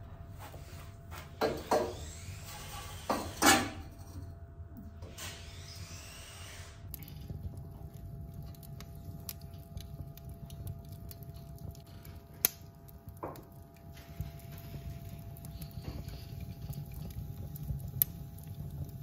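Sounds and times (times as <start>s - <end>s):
wood fire crackling: 0.0s - 3.9s, 5.0s - 19.0s
flames rumbling: 5.0s - 19.0s.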